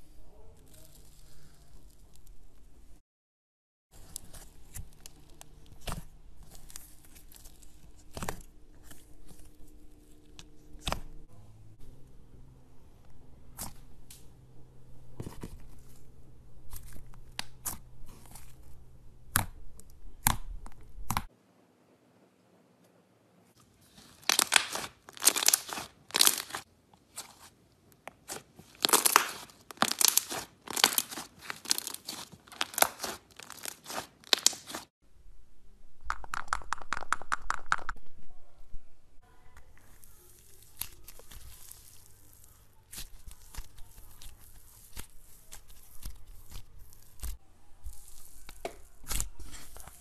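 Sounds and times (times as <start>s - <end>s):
slime crackling and snapping: 24.1s - 26.7s, 28.2s - 34.9s, 40.0s - 50.0s.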